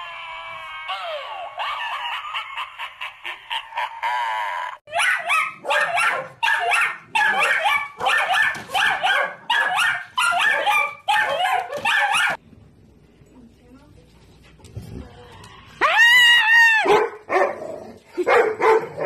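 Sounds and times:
dogs barking and yipping: 4.9 - 12.4, 16.7 - 19.0.

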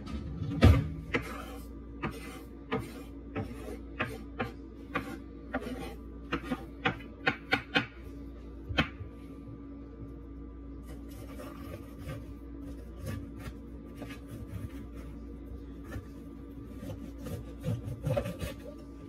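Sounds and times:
knife chopping on wooden board: 0.6 - 8.0.

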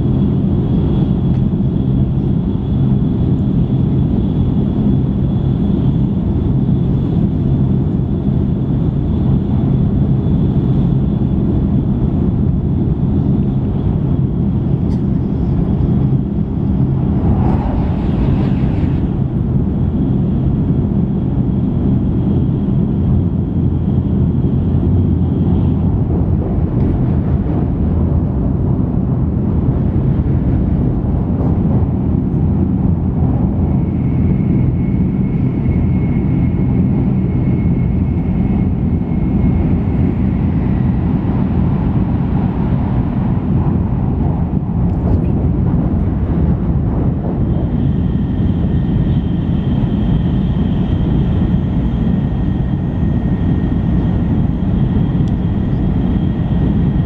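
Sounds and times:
air noise: 0.0 - 57.0
wheels rumbling on rail: 0.0 - 57.0
rush of noise: 12.3 - 22.0, 23.1 - 57.0
faint high whines: 12.9 - 21.8.

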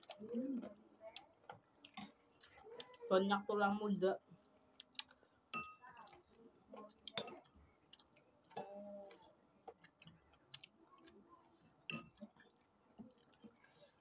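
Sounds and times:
spoons clinking against ceramic bowls: 5.5 - 5.9, 11.9 - 12.2.

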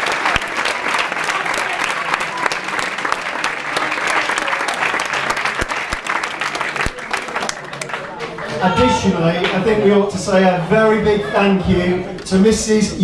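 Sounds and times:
audience applause: 0.0 - 9.7.

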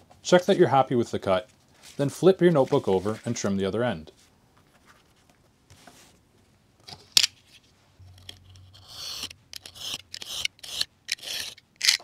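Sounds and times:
craft knife slicing paper: 8.8 - 12.0.

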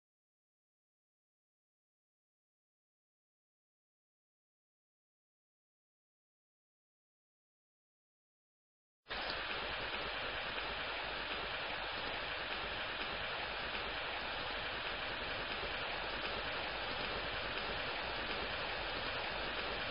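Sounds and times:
rain hissing: 9.1 - 19.9.

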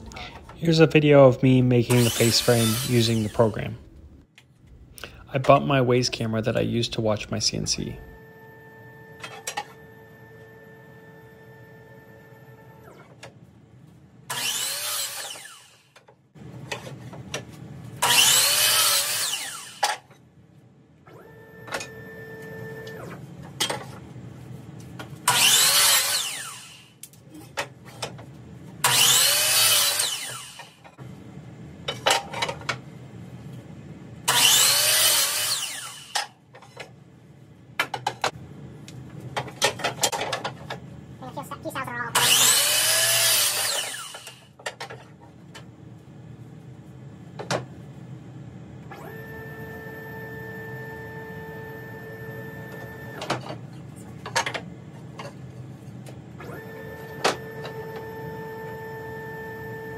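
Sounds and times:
miter saw cutting: 1.9 - 3.7, 14.3 - 15.9, 18.0 - 19.9, 25.3 - 27.0, 28.8 - 30.8, 34.3 - 36.3, 42.2 - 44.5
stepper motors whining: 1.9 - 4.2, 25.3 - 27.0, 28.8 - 30.8, 34.3 - 36.2, 42.1 - 44.4.

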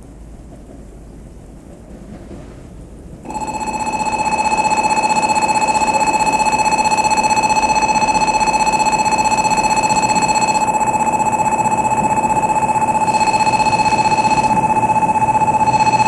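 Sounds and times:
platform warning alarm ringing: 3.2 - 16.0.

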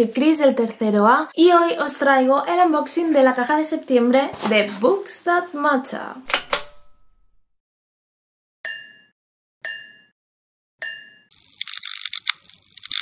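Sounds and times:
crackling electric buzz: 11.4 - 13.0.

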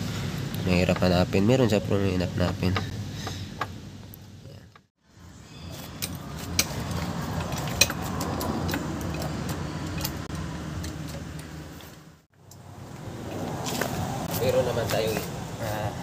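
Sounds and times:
metallic clicks and rattles: 6.0 - 12.0.

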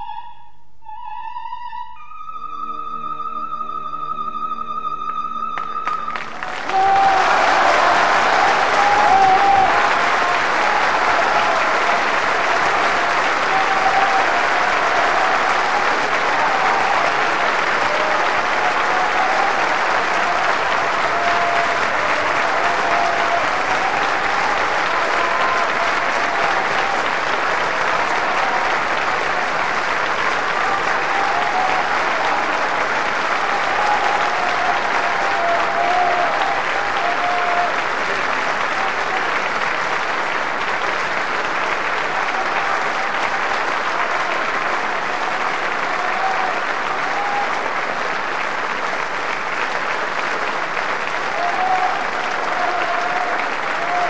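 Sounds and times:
audience applauding: 4.8 - 54.0
people shouting: 6.4 - 37.8, 42.1 - 47.7, 51.3 - 54.0.

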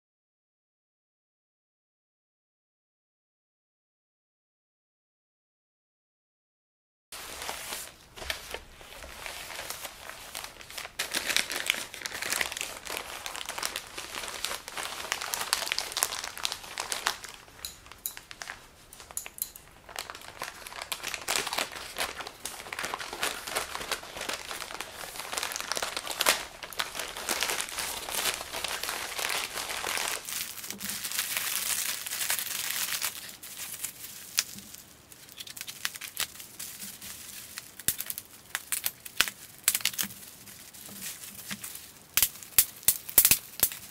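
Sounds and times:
plastic bag crinkling: 7.2 - 43.9
scissors cutting plastic: 40.9 - 43.9.

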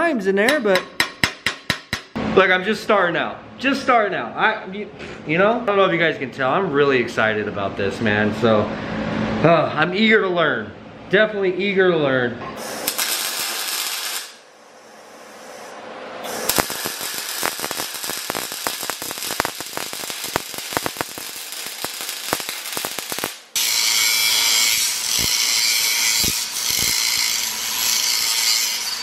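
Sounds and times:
welder arc crackling: 12.8 - 14.4, 16.2 - 28.0
angle grinder cutting steel pipe: 16.2 - 29.0.

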